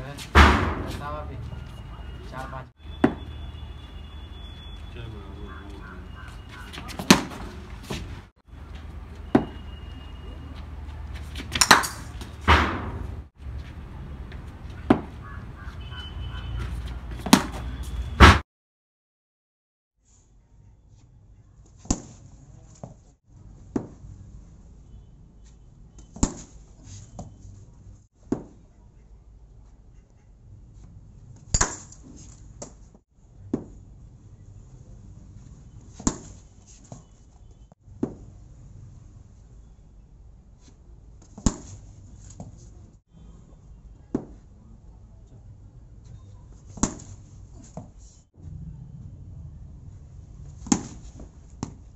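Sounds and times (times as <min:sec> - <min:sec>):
cricket bat hitting ball: 0:00.4 - 0:00.9, 0:03.0 - 0:03.3, 0:06.9 - 0:07.5, 0:09.3 - 0:09.6, 0:11.4 - 0:13.2, 0:14.9 - 0:15.2, 0:17.2 - 0:17.6, 0:46.7 - 0:47.2, 0:50.6 - 0:51.8.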